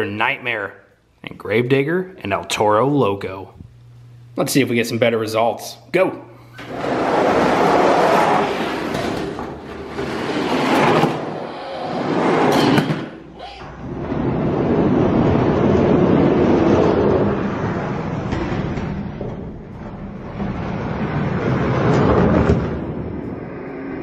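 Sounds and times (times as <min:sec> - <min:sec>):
toy wheels rumbling on plastic track: 0:06.6 - 0:12.6.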